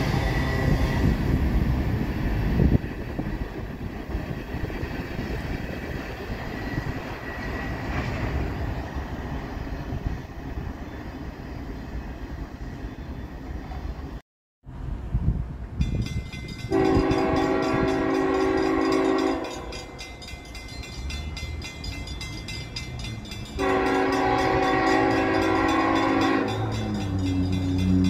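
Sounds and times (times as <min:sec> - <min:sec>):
low train rumble: 0:00.0 - 0:28.0
train air horn blasts: 0:16.7 - 0:19.7, 0:23.6 - 0:28.0.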